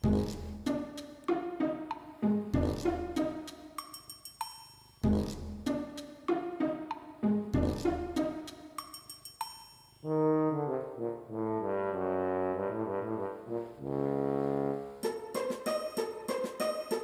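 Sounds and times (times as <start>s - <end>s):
slow held brass chords: 10.1s - 15.0s.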